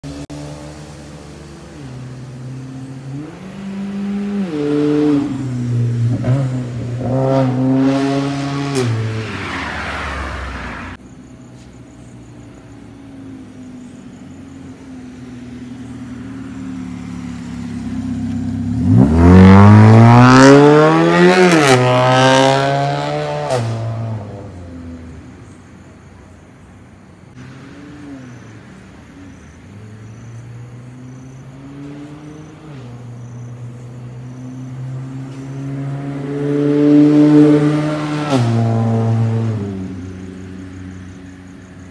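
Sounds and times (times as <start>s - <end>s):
car exhaust accelerating hard: 14.8s - 26.0s.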